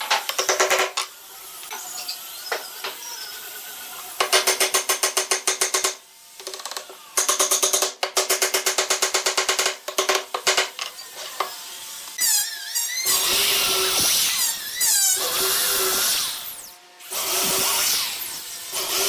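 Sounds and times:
electric drill boring into wood: 11.0 - 19.0.

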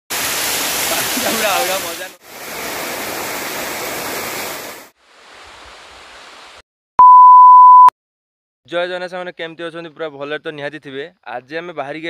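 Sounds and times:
waterfall crashing and splashing: 0.1 - 6.6
test tone beep: 7.0 - 7.9.

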